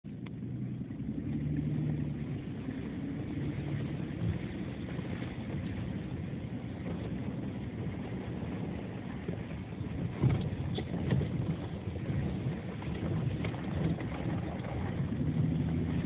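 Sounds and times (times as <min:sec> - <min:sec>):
tyres on snowy track: 0:00.0 - 0:16.0
vehicle engine: 0:00.0 - 0:16.0.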